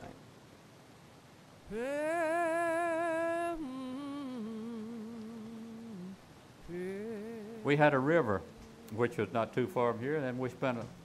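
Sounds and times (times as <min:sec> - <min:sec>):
solo voice singing with vibrato: 0:01.6 - 0:09.6.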